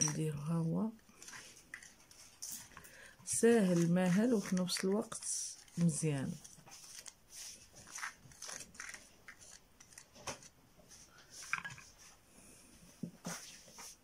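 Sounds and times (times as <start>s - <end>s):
spatula scraping plastic: 1.0s - 12.1s.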